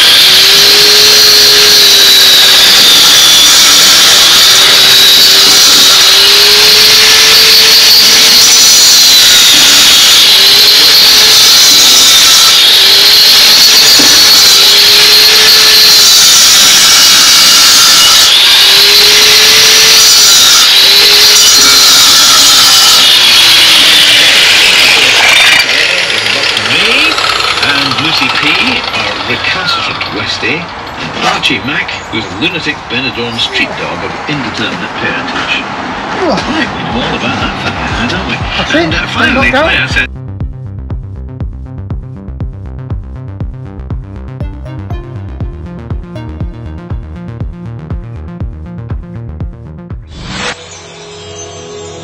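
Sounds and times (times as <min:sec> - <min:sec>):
angle grinder cutting concrete: 0:00.0 - 0:15.8, 0:16.4 - 0:29.7.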